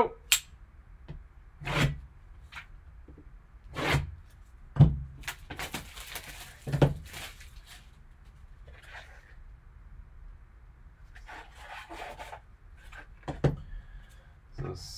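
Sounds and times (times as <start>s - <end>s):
plastic wrap rustling: 5.2s - 9.4s.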